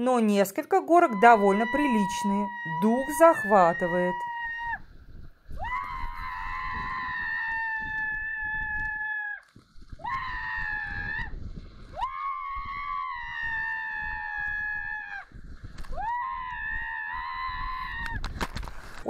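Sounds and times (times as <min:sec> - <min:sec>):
woman screaming: 0:00.8 - 0:04.8, 0:05.6 - 0:09.4, 0:10.0 - 0:11.3, 0:12.0 - 0:15.2, 0:16.0 - 0:18.2.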